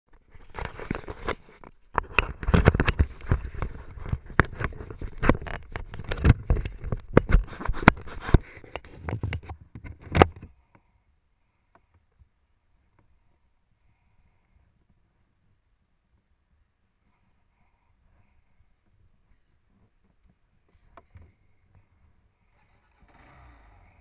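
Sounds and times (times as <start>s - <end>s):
camera handling knocks and scrapes: 0.3s - 10.5s.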